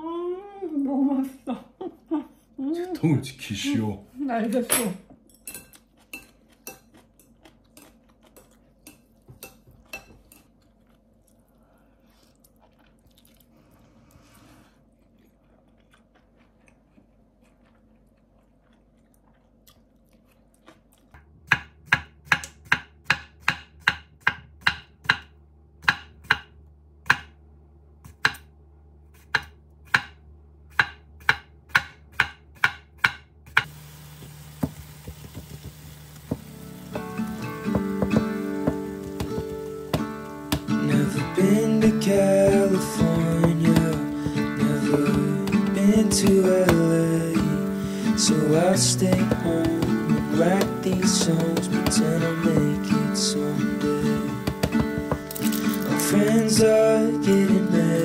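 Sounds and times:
eating with chopsticks from a bowl: 5.4s - 21.2s
meat sizzling in a frying pan: 33.7s - 41.3s.

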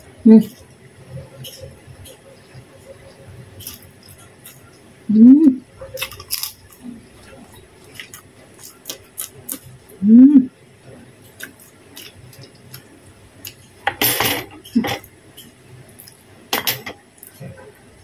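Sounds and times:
person humming: 5.1s - 5.6s, 10.0s - 10.5s.

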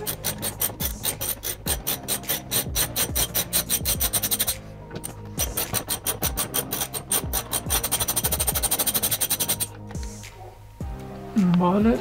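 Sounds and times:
ticking hi-hats: 5.4s - 11.0s
kick drums: 10.0s - 12.0s.

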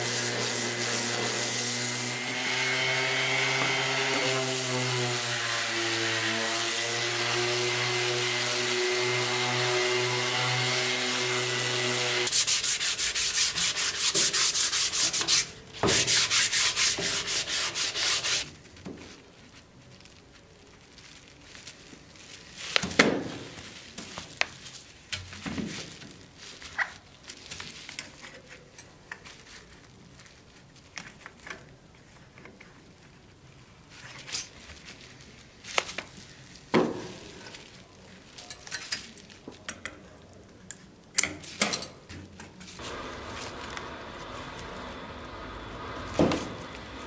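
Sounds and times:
orbital sander running: 0.0s - 13.5s, 42.8s - 47.0s
rasping sanding strokes: 0.0s - 18.5s, 42.8s - 47.0s
rustles and taps of handling: 18.5s - 42.8s.

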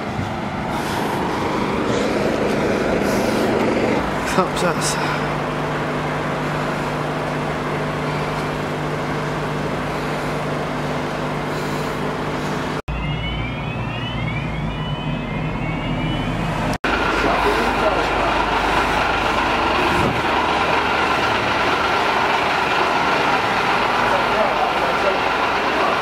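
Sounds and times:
fire engine idling: 0.0s - 26.0s
low rumble: 12.9s - 24.1s.

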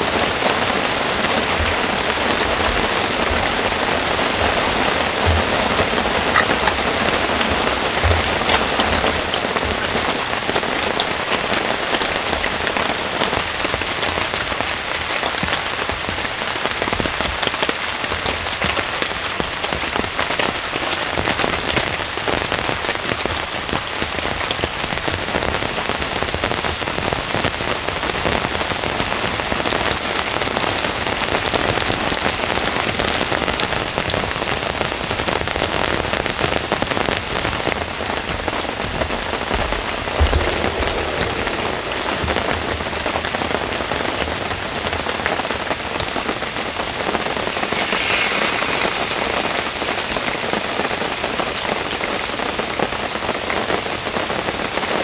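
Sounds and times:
heavy rain on leaves: 0.0s - 55.0s.

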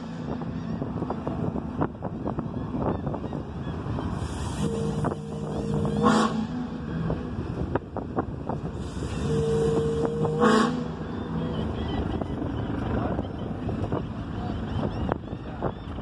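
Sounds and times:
multi-tone horn blasts: 4.4s - 7.4s, 9.0s - 11.2s.

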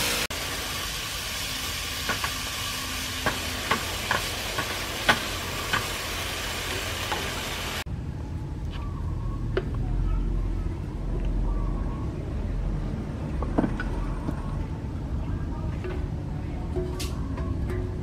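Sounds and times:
food sizzling in frying pan: 0.0s - 7.8s.

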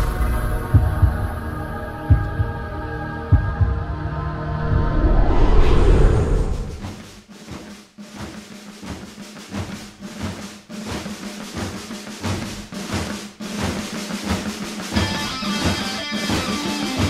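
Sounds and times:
drum beat: 6.8s - 17.0s
guitar: 15.0s - 17.0s
rock music: 15.0s - 17.0s.

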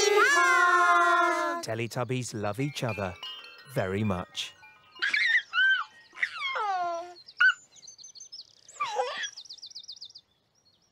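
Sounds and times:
high chirping birdsong: 1.7s - 10.9s
baby laughing: 5.0s - 7.6s.

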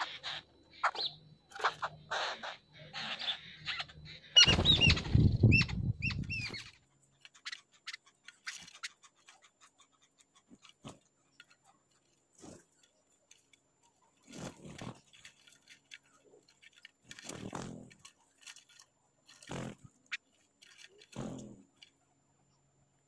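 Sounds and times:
bird chirps: 0.0s - 17.9s
birds rasping chatter: 0.0s - 22.7s
small clicks: 6.2s - 22.0s.

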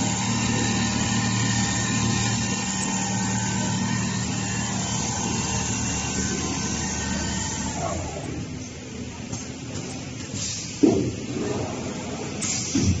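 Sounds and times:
sewing machine running: 0.0s - 8.2s.

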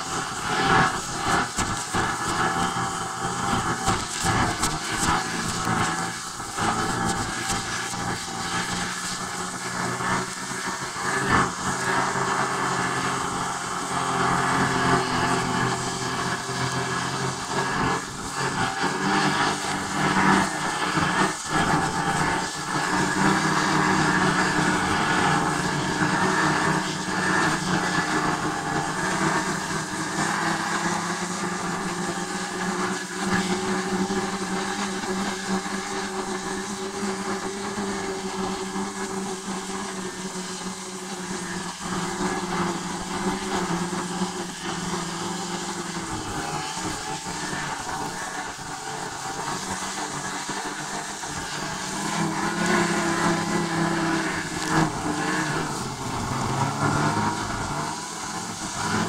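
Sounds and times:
vehicle engine droning: 0.0s - 59.0s.

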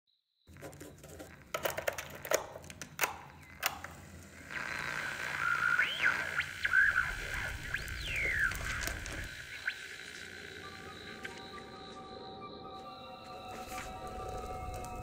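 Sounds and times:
radio static: 4.3s - 11.9s
whistling tuning tones: 4.5s - 15.0s.

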